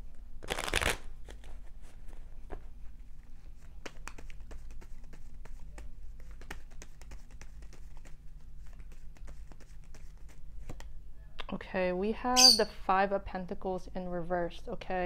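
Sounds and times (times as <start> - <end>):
cards being shuffled: 0.4 - 2.7, 3.5 - 11.0.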